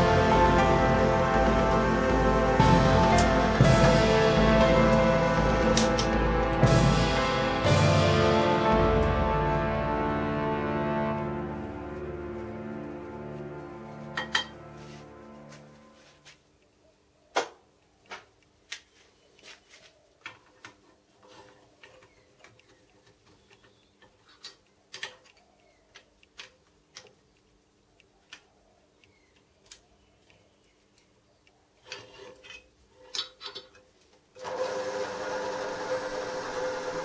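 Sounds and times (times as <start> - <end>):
steady machine hum: 0.0 - 16.0, 34.5 - 37.0.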